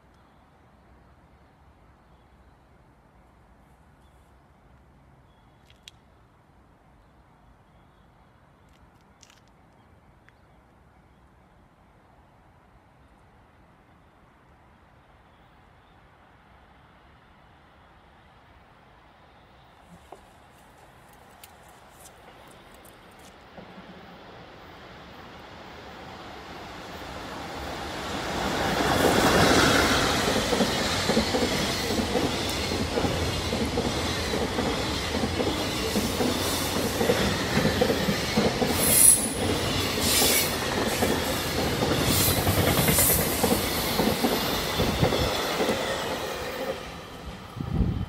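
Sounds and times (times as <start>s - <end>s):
train wheels rumbling on rails: 22.1s - 48.0s
electric locomotive passing: 22.2s - 48.0s.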